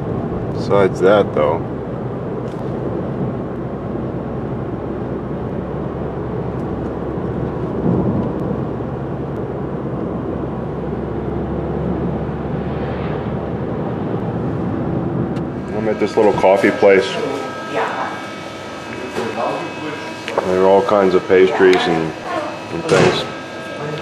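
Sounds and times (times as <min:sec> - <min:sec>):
road and engine rumble: 0:00.0 - 0:16.4
passing car whoosh: 0:12.1 - 0:15.4.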